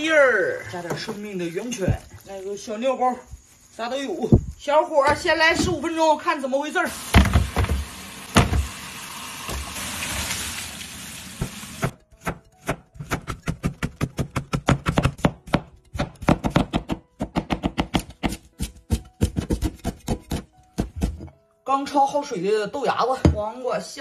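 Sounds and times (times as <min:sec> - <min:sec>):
tap water running: 0:06.9 - 0:12.0
cleaver chopping on cutting board: 0:11.4 - 0:21.3.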